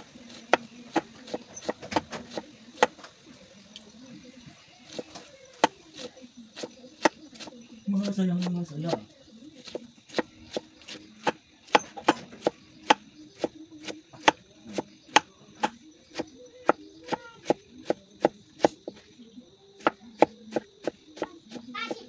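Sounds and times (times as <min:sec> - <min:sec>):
knife chopping on board: 0:00.0 - 0:03.0, 0:04.9 - 0:07.5, 0:09.6 - 0:19.0, 0:19.8 - 0:21.6.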